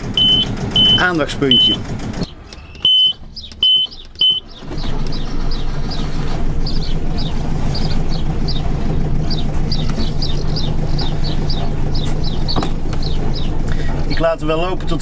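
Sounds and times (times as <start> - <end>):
boat engine starting and droning: 0.0 - 15.0
short high beeps: 0.2 - 1.8, 2.7 - 4.5.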